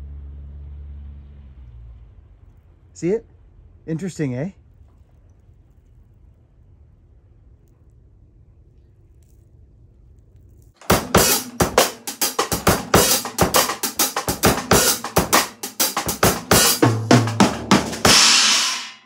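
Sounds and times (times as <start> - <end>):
cymbal crash ringing: 10.8 - 19.0
drum kit playing: 10.8 - 19.0.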